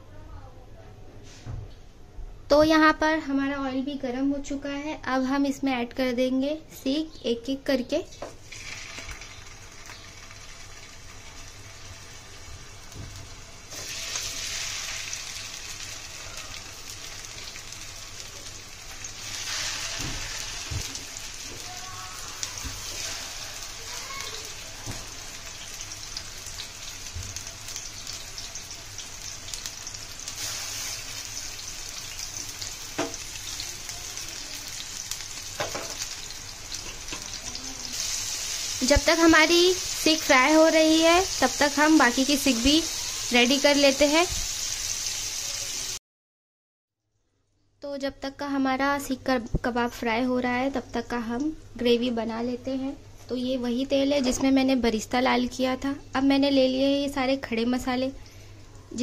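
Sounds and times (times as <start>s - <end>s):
kebabs sizzling in hot oil: 8.1s - 46.0s.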